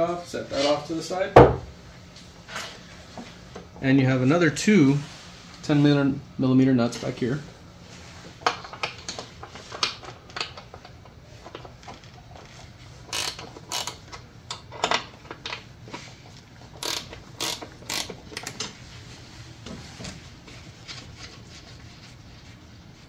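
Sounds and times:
socket ratchet clicking: 13.1s - 14.1s, 16.8s - 18.6s.

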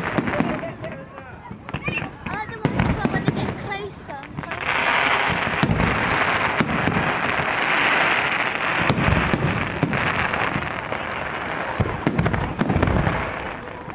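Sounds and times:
low booming: 0.0s - 11.1s
fireworks bangs: 0.0s - 13.9s
fireworks crackling: 0.0s - 13.9s.

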